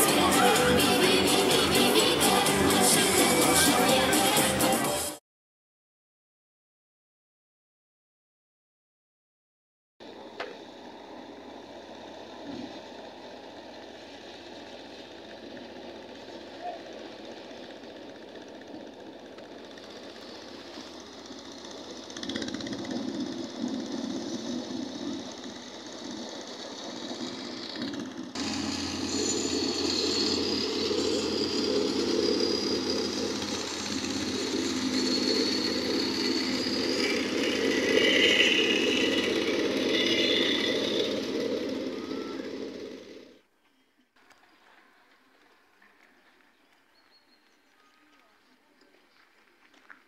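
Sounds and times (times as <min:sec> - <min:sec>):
plate compactor engine rattling: 0:00.0 - 0:04.7, 0:11.6 - 0:43.4.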